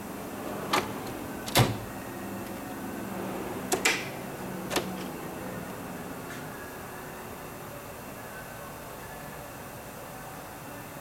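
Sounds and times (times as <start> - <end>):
metal drawers opening and shutting: 0.4 - 5.2.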